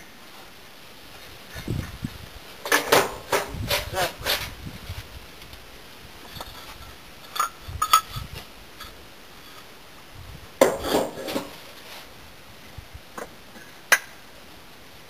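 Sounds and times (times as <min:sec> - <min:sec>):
clatter of brick on brick: 0:02.6 - 0:04.5, 0:10.6 - 0:11.6
firebricks clinking: 0:02.6 - 0:04.6, 0:06.2 - 0:09.7, 0:10.6 - 0:11.7.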